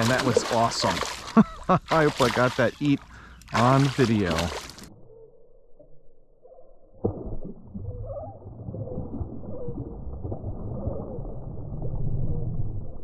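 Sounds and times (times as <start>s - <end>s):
fish splash: 0.0s - 4.9s
muffled churning water: 0.0s - 5.0s, 7.0s - 13.0s
slow warbling tones: 4.8s - 13.0s.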